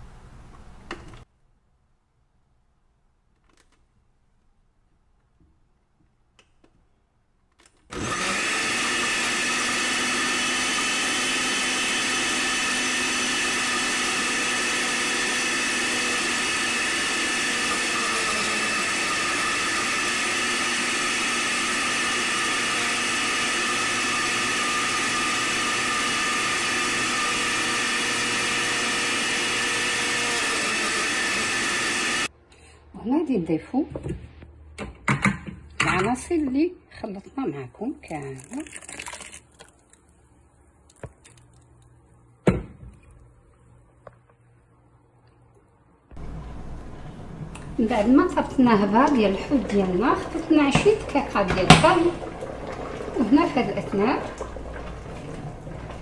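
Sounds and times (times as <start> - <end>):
blender running: 7.9 - 32.3, 46.2 - 56.0.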